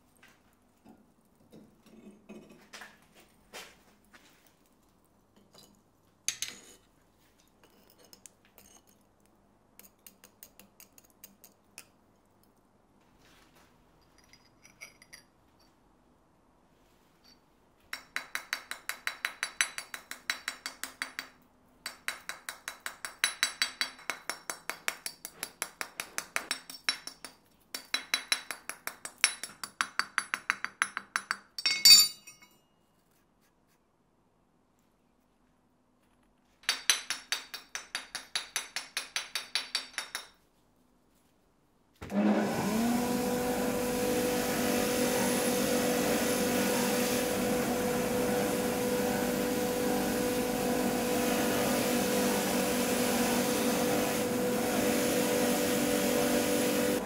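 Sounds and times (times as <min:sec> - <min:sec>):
hammer tapping steel: 0:17.9 - 0:32.6.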